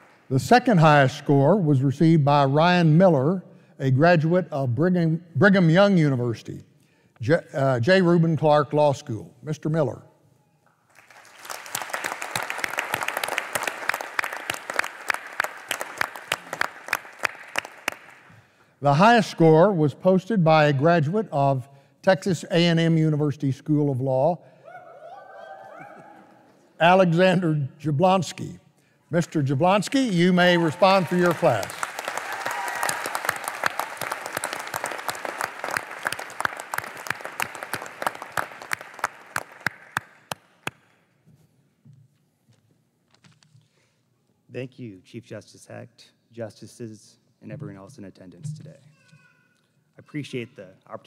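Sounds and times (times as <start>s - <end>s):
audience applauding: 0.0s - 0.2s, 10.9s - 18.3s, 29.4s - 40.7s.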